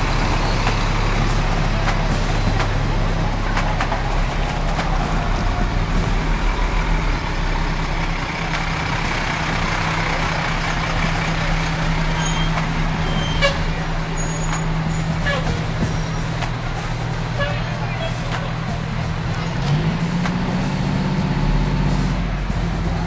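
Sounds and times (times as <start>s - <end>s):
fire truck engines droning: 0.0s - 23.0s.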